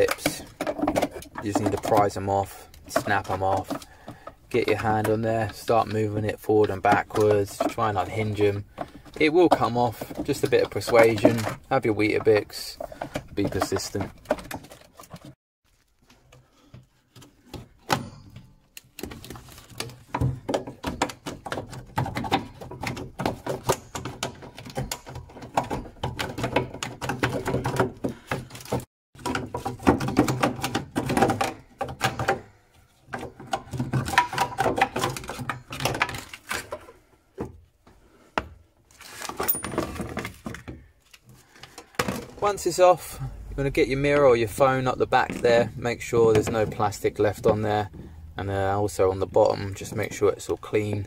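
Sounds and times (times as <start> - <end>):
tools scraping plastic: 0.0 - 48.3
plastic clicks and knocks: 18.7 - 37.6.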